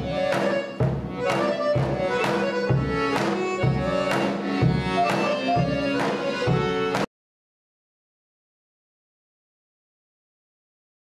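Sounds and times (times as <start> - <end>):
melody of held notes: 0.0 - 7.0
steady drum beat: 0.0 - 7.1.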